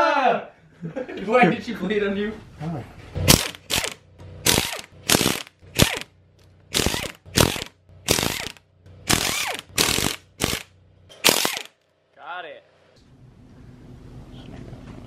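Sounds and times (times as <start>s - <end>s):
impact wrench bursts: 3.3s - 6.1s, 6.7s - 11.8s.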